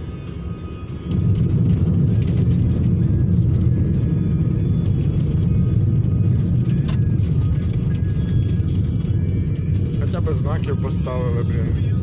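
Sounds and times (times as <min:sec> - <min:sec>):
tyre rumble inside car: 0:01.1 - 0:04.0.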